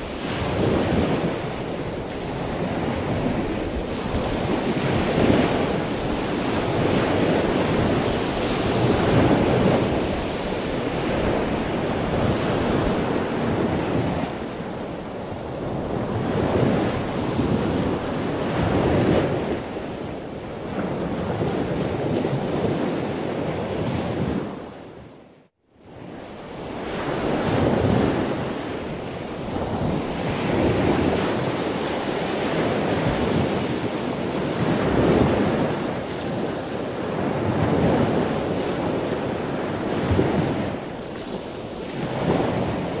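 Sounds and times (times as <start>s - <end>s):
sea waves washing: 0.0s - 24.5s, 26.5s - 43.0s
wind buffeting microphone: 0.0s - 25.1s, 26.0s - 43.0s.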